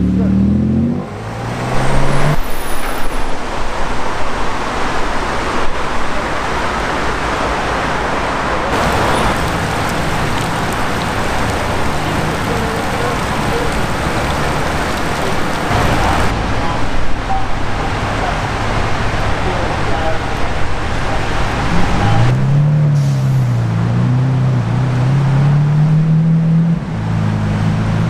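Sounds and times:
sports car accelerating past: 0.0s - 3.3s
city traffic noise: 0.0s - 28.0s.

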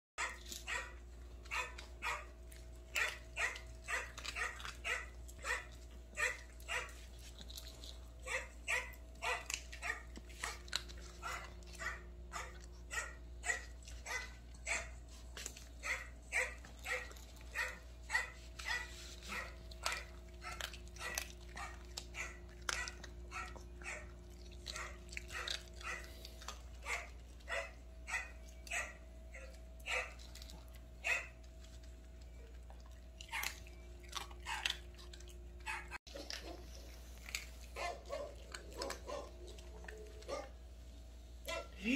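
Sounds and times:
small dog barking: 0.2s - 2.3s, 3.0s - 7.0s, 8.2s - 10.6s, 11.2s - 15.0s, 15.8s - 24.1s, 24.7s - 26.1s, 26.8s - 30.2s, 31.0s - 31.4s, 37.8s - 40.6s, 41.4s - 41.9s.

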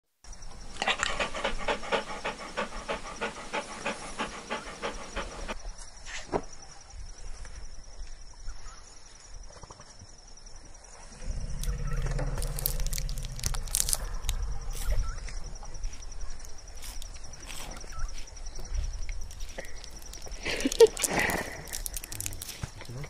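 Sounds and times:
dog panting: 0.8s - 5.6s.

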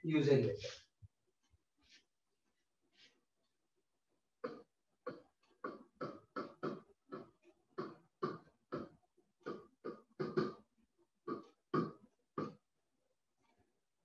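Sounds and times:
pen scratching on a board: 4.4s - 12.6s.

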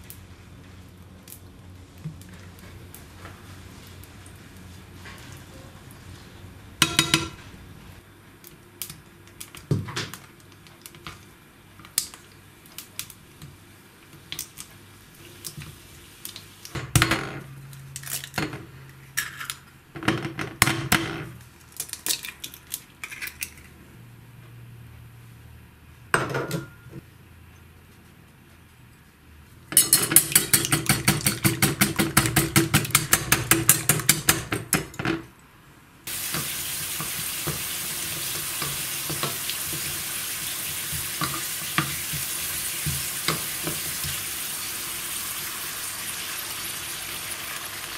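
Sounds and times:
utensils clinking on frying pan: 6.8s - 7.4s, 29.7s - 35.2s.

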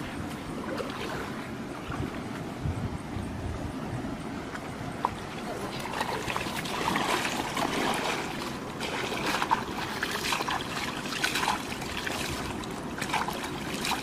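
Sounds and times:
hands splashing in muddy water: 5.9s - 14.0s.

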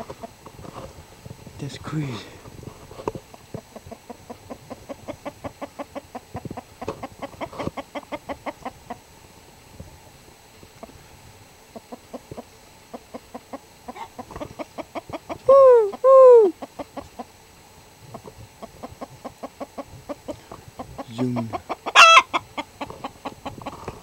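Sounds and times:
chickens clucking: 3.2s - 9.2s, 10.6s - 24.0s
chicken squawking: 15.0s - 16.7s, 21.4s - 22.7s.

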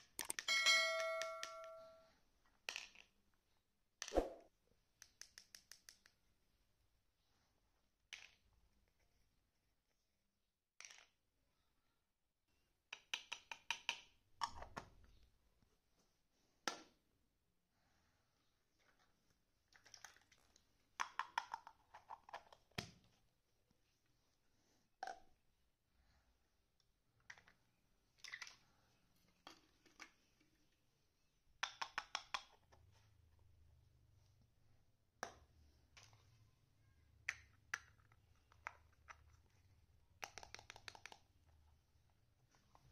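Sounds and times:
plastic toy pots clicking: 0.0s - 1.9s, 2.5s - 3.2s, 5.0s - 6.2s, 8.1s - 8.6s, 10.8s - 11.2s, 12.9s - 15.0s, 19.7s - 23.1s, 31.6s - 32.9s, 37.1s - 41.6s
plastic toy dishes clicking: 21.0s - 22.8s, 40.2s - 41.3s.

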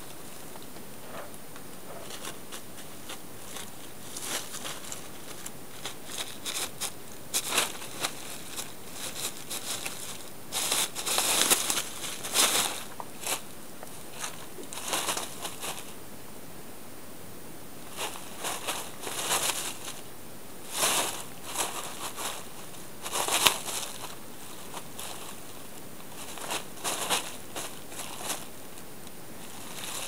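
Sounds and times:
plastic tarp crinkling: 4.1s - 13.4s, 20.7s - 25.4s, 26.1s - 28.5s, 29.5s - 30.0s.

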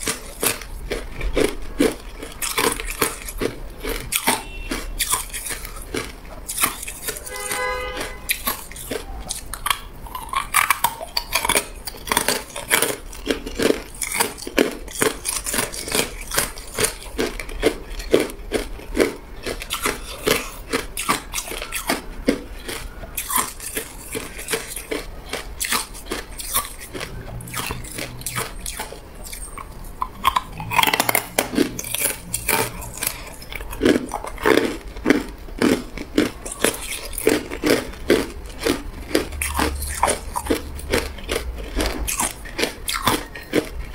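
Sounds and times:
ice cubes crunching when chewed: 0.0s - 43.9s.

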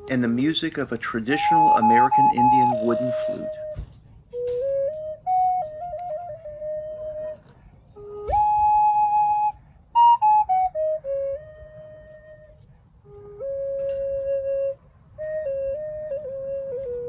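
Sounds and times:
wooden flute melody: 0.0s - 17.0s.

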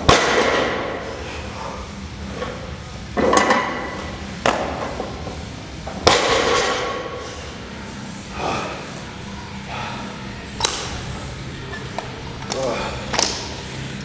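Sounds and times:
barbell hitting the floor: 6.0s - 7.0s.

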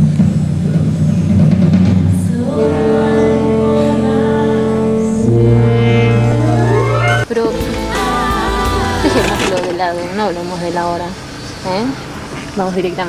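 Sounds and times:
low sustained instrumental notes: 2.4s - 9.8s.

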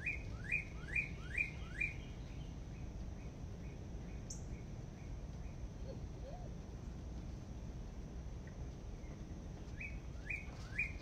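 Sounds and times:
bird chirping: 0.0s - 6.5s
faint outdoor background noise: 0.0s - 11.0s.

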